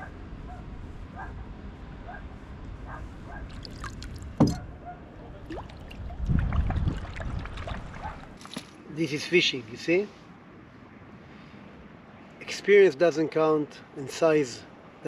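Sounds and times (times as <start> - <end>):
fish splashing in water: 3.5 - 4.6, 5.4 - 8.8.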